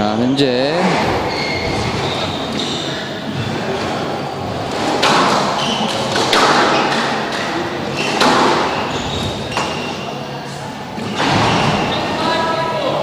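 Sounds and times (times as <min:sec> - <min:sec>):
squash ball hits: 0:04.6 - 0:09.7.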